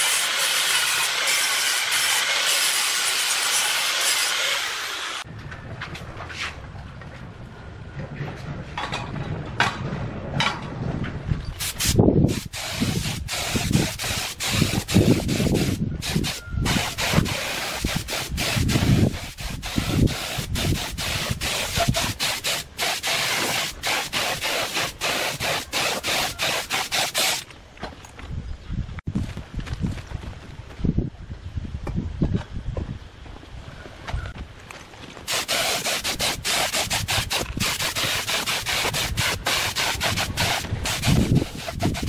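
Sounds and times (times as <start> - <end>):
spray gun hissing: 0.0 - 5.2, 11.6 - 27.4, 35.3 - 42.0.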